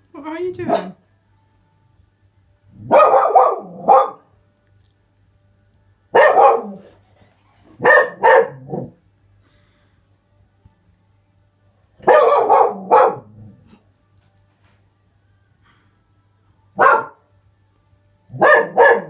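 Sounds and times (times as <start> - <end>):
puppy barking: 0.7 - 1.0, 2.8 - 4.3, 6.1 - 7.0, 7.8 - 9.0, 12.0 - 13.4, 16.8 - 17.2, 18.3 - 19.0.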